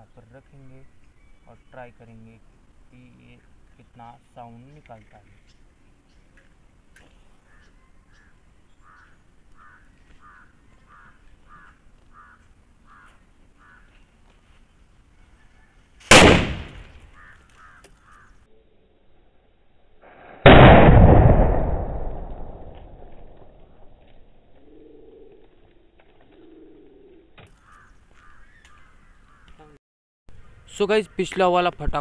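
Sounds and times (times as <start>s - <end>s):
bird calling: 7.1s - 14.2s, 16.6s - 18.7s, 24.5s - 31.6s
firecracker bang: 16.1s - 17.1s, 20.1s - 23.6s
deep boom: 20.3s - 23.8s.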